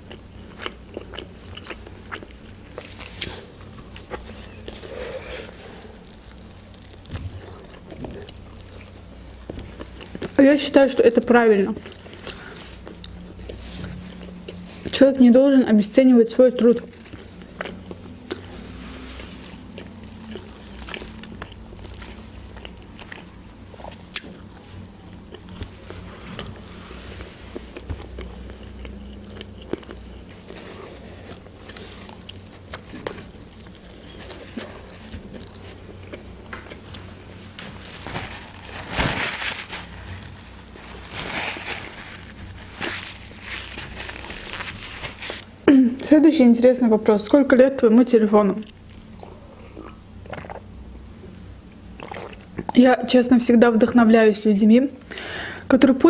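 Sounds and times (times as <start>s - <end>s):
chewing and crunching fried chicken: 0.0s - 45.6s, 48.6s - 50.7s, 51.6s - 52.8s
paper napkin rustling: 36.8s - 45.5s.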